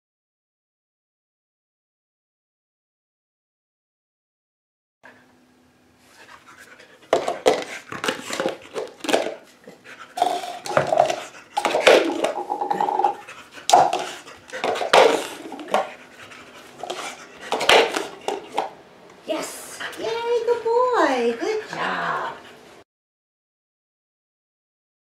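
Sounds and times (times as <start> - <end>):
dog panting: 6.1 - 18.7, 19.3 - 22.8
plastic cups clattering: 7.1 - 9.4, 10.2 - 15.9, 16.8 - 18.7.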